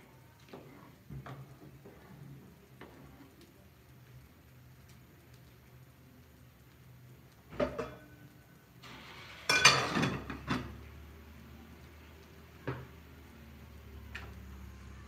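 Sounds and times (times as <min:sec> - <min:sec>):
pot lid clattering on pot: 0:07.6 - 0:08.0, 0:09.5 - 0:10.7.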